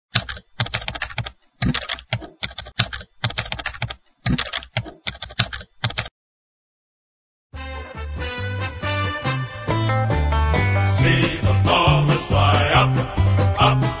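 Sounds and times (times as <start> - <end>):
typing on a keyboard: 0.1 - 6.1.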